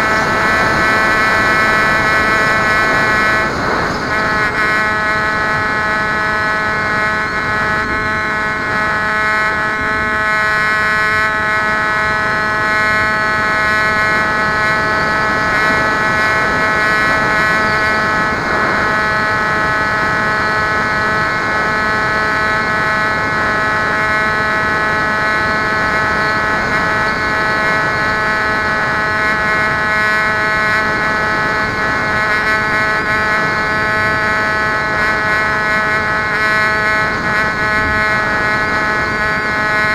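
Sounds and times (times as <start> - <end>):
electric motor and propeller whine: 0.0 - 39.9
wind noise: 0.0 - 39.9.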